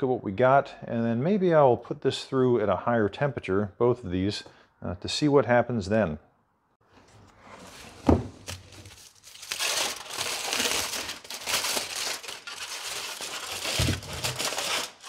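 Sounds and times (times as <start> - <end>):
aluminium foil crinkling: 8.4 - 15.0.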